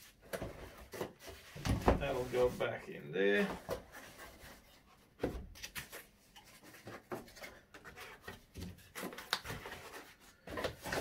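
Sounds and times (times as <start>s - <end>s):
soft wooden scraping: 0.9s - 5.1s.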